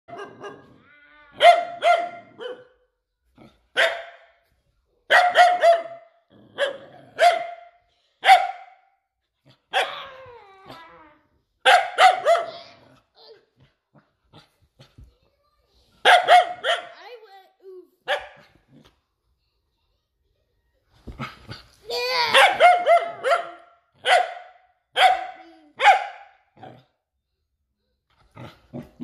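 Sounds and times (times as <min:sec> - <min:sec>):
puppy barking: 0:00.1 - 0:00.7, 0:01.4 - 0:02.8, 0:03.8 - 0:04.3, 0:05.1 - 0:08.8, 0:11.6 - 0:12.7, 0:16.0 - 0:17.0, 0:18.0 - 0:18.5, 0:22.3 - 0:26.4.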